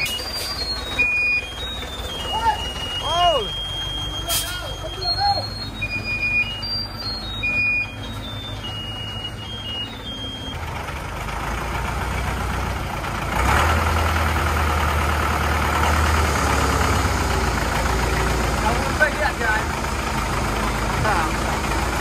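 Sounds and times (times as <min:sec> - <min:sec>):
faint short high beeps: 0:00.0 - 0:10.6
diesel engine drone: 0:00.0 - 0:22.0.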